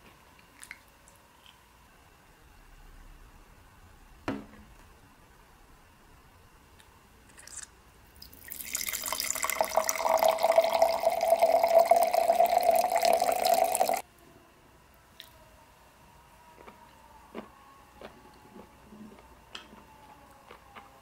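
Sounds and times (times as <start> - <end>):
wine pouring into a glass: 8.2 - 14.0.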